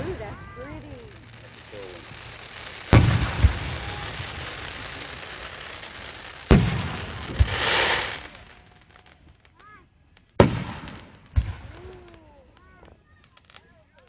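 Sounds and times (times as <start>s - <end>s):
firework shells booming: 0.0s - 8.7s, 10.2s - 12.2s.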